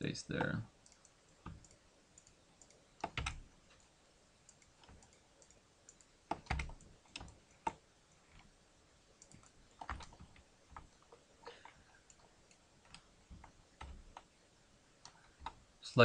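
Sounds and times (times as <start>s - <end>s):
computer keyboard keystrokes: 0.4s - 3.4s, 4.5s - 8.5s, 9.2s - 10.9s.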